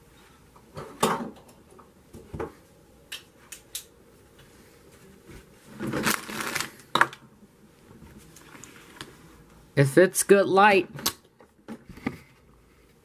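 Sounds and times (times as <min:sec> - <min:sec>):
plastic packaging rustling: 0:05.7 - 0:07.1, 0:08.2 - 0:09.2.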